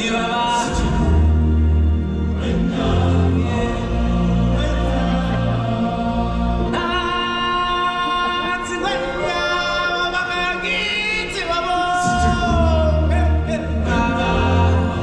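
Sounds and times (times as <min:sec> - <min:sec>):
voices singing long notes: 0:00.0 - 0:15.0
deep bass: 0:12.0 - 0:15.0.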